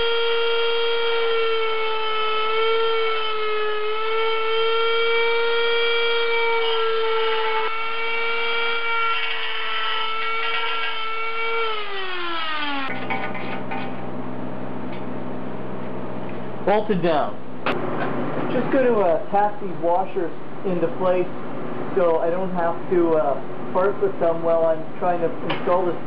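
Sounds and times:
grinder spinning down: 0:00.0 - 0:13.5
die grinder cutting metal: 0:00.0 - 0:13.6.

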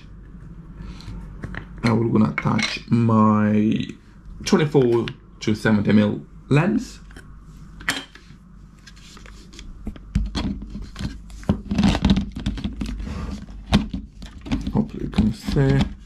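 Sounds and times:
handling knocks and rustling: 0:13.6 - 0:16.0.

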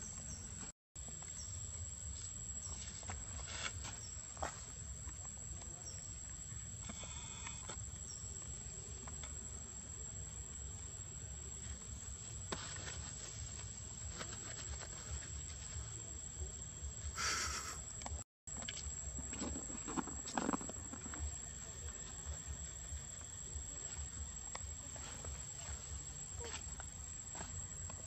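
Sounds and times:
high-pitched insect drone: 0:17.2 - 0:17.9.

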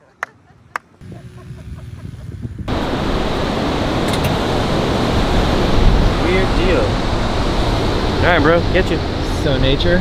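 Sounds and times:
wind: 0:00.0 - 0:10.0
surf: 0:02.7 - 0:10.0.

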